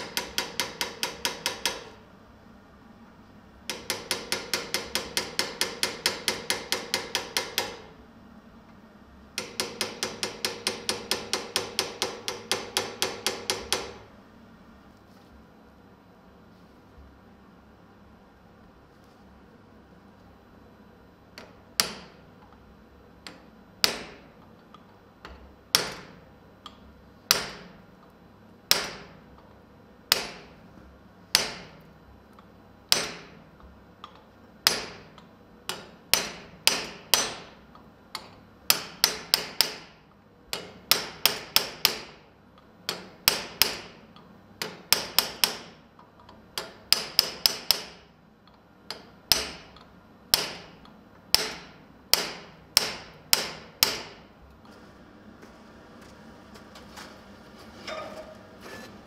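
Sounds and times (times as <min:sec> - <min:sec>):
hammer striking chisel on steel: 0:00.0 - 0:02.0, 0:03.7 - 0:07.9, 0:09.4 - 0:14.0, 0:21.4 - 0:22.2, 0:23.3 - 0:24.3, 0:25.3 - 0:26.2, 0:27.3 - 0:27.8, 0:28.7 - 0:29.2, 0:30.1 - 0:30.6, 0:31.3 - 0:31.8, 0:32.9 - 0:33.4, 0:34.0 - 0:37.6, 0:38.2 - 0:42.2, 0:42.9 - 0:44.0, 0:44.6 - 0:45.8, 0:46.6 - 0:48.1, 0:48.9 - 0:54.2.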